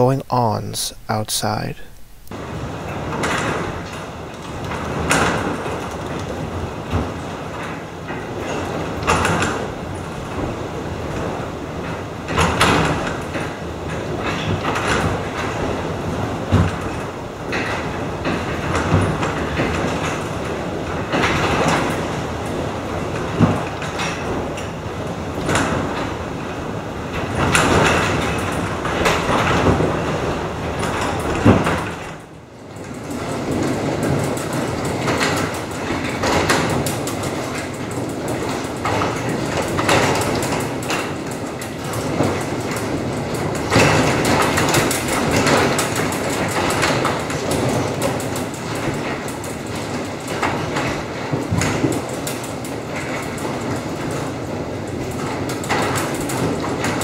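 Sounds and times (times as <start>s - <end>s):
garage doors rattling and banging: 2.4s - 57.0s.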